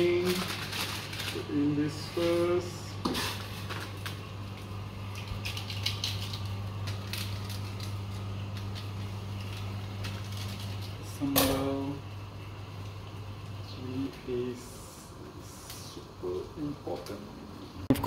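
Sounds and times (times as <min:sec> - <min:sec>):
sachets crinkling: 0:00.0 - 0:02.4, 0:03.2 - 0:11.0
steady low hum: 0:00.0 - 0:18.0.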